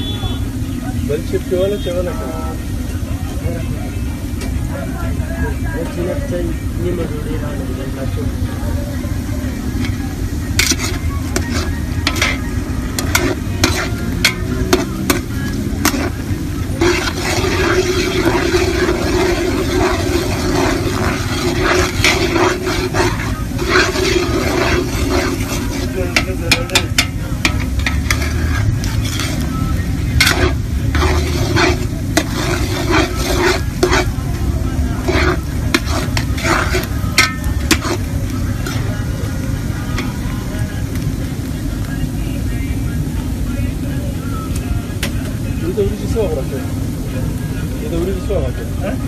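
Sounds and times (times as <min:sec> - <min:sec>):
onions sizzling in oil: 0:00.0 - 0:49.0
low rumble: 0:08.4 - 0:42.8
metal ladle scraping pot: 0:09.6 - 0:40.2.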